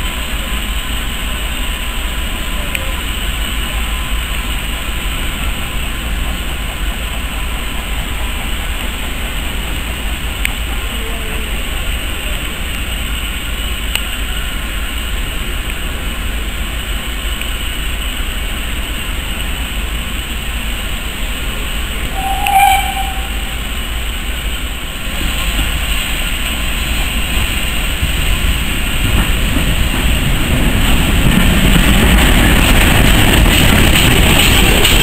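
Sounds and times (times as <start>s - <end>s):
steam locomotive rumble and hiss: 0.0s - 35.0s.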